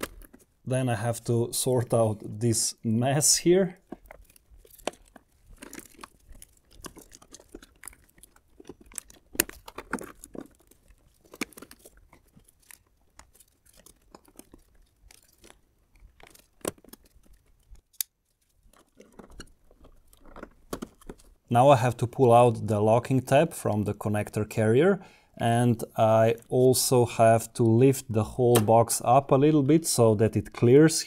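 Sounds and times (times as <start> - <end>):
sharp plastic clicks: 3.8 - 21.3
plastic connectors clicking: 16.2 - 21.3.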